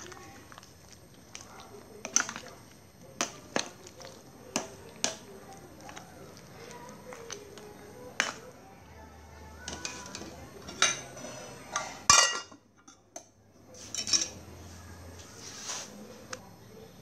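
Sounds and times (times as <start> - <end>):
metal ladle clinking on pot: 9.7 - 13.3.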